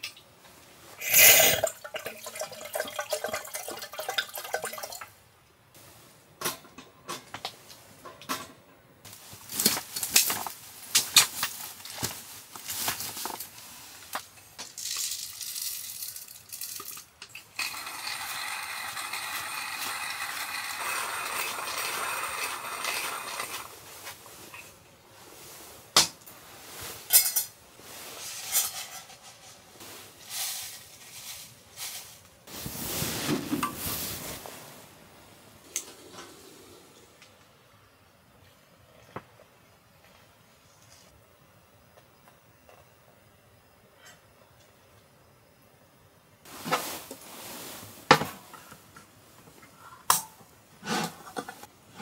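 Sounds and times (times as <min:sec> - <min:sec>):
hand coffee grinder grinding: 0:17.6 - 0:23.7.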